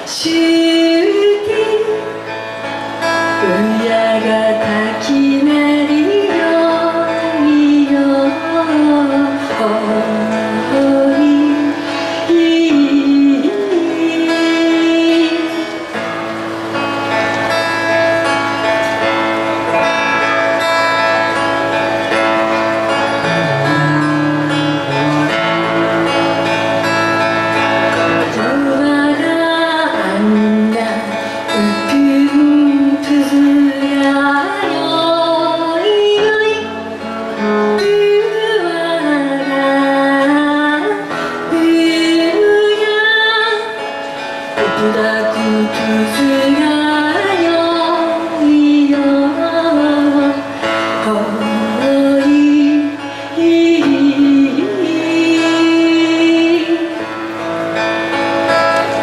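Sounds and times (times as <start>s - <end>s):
woman singing: 0.0s - 16.0s, 27.8s - 57.9s
acoustic guitar: 0.0s - 59.0s
electric bass: 2.0s - 33.7s.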